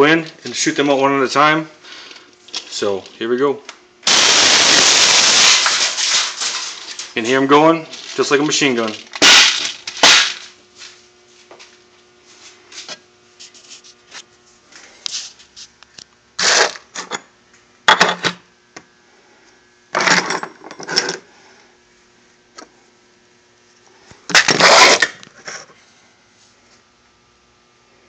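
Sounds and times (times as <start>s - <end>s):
air blow gun hissing blasts: 4.0s - 6.7s
plastic pellets clicking and rattling: 4.0s - 7.2s, 7.9s - 10.5s.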